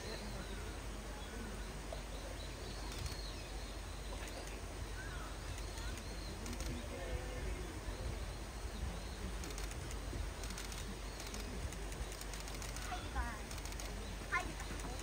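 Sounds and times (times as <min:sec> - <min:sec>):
bird chirps: 0:00.0 - 0:06.8.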